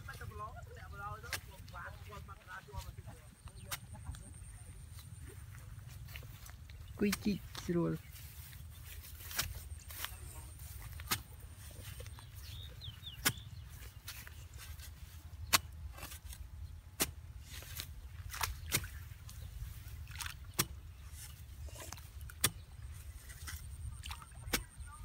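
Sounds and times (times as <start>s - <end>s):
metal blade chopping wet soil: 9.0s - 24.9s.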